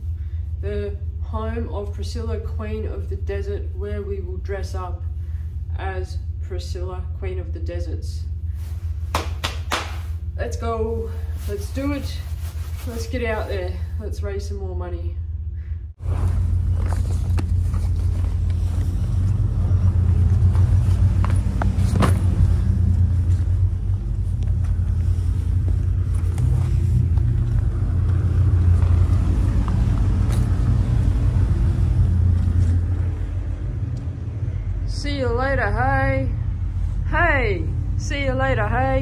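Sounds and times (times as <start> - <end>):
car engine running: 16.0 - 39.0.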